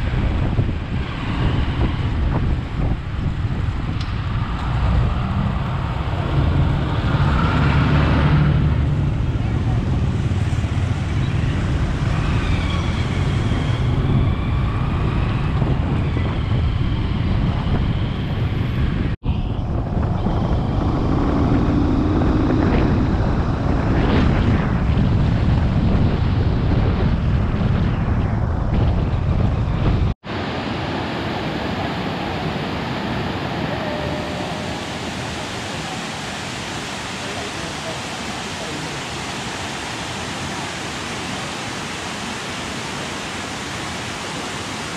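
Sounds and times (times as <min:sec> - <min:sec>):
wind buffeting microphone: 0:00.0 - 0:30.4
waterfall rushing: 0:30.2 - 0:44.9.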